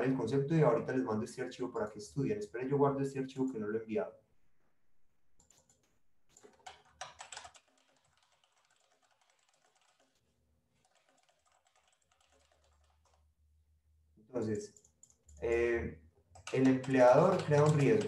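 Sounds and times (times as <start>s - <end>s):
typing on computer keyboard: 5.4s - 10.2s, 10.8s - 13.2s, 14.8s - 15.4s, 16.3s - 18.0s.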